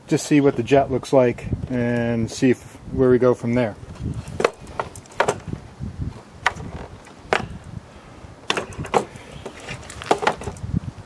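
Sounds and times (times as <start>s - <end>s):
plastic housing knocking on wood: 4.4s - 5.5s.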